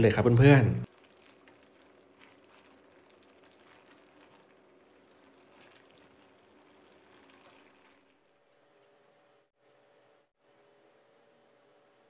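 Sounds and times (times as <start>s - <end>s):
curry bubbling and popping: 0.8s - 8.7s.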